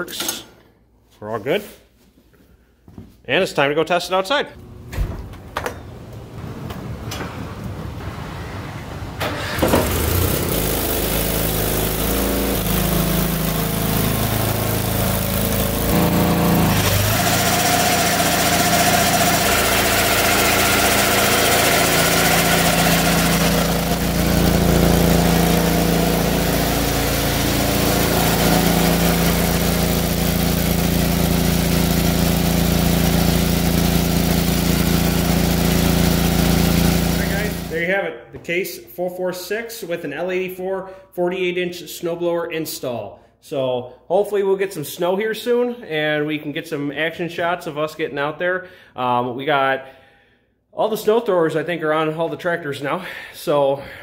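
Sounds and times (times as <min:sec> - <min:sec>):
garden tractor engine running: 0:09.2 - 0:37.8.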